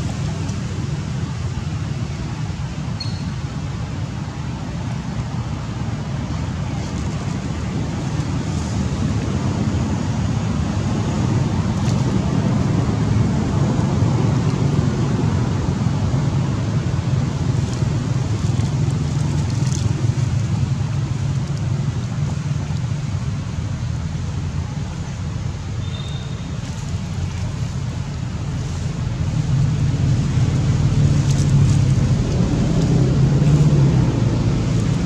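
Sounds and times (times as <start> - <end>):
low rumbling noise: 3.5 - 35.0
dry leaves crackling underfoot: 17.1 - 23.8, 25.8 - 35.0.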